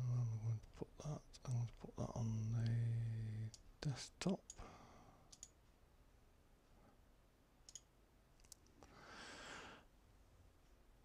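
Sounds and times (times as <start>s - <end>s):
soft breath out: 4.6s - 5.3s, 8.8s - 9.9s
computer mouse clicks: 5.3s - 5.6s, 7.6s - 8.7s.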